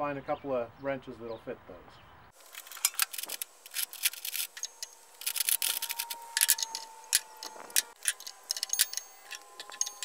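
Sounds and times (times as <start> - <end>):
steel wrenches clinking: 2.4 - 10.0.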